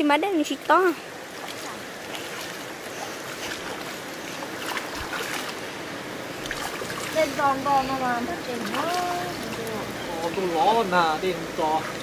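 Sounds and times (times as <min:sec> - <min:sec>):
river water rushing: 0:00.0 - 0:12.0
hands splashing in water: 0:01.4 - 0:05.6, 0:06.4 - 0:07.4, 0:08.5 - 0:09.8.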